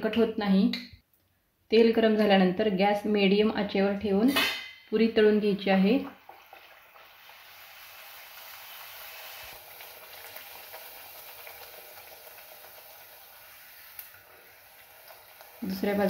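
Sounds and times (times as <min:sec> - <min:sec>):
bread sizzling in hot oil: 0:06.1 - 0:16.0.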